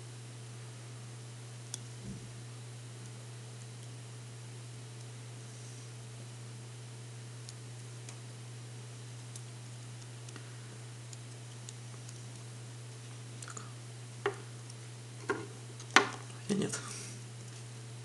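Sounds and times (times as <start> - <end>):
steady low hum: 0.0 - 18.0
wires being twisted by hand: 8.9 - 13.5.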